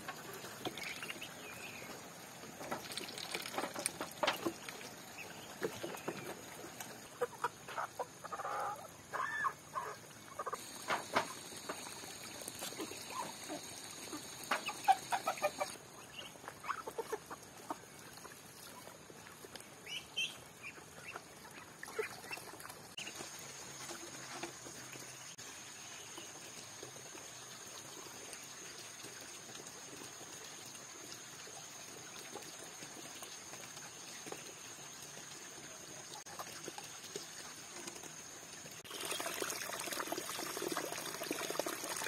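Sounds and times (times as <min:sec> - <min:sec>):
chickens clucking: 0:00.0 - 0:18.8.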